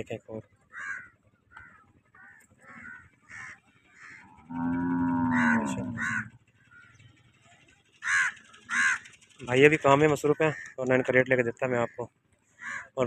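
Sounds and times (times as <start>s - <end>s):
crows cawing: 0.6s - 7.0s, 7.9s - 9.3s, 10.2s - 13.0s
cow mooing: 4.2s - 6.4s.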